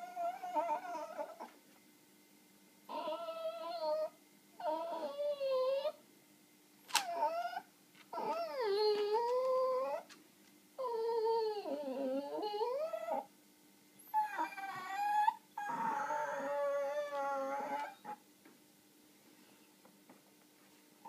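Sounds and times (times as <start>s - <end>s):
small dog whining: 0.0s - 1.6s, 2.9s - 6.0s, 7.0s - 10.2s, 10.8s - 13.3s, 14.0s - 18.2s.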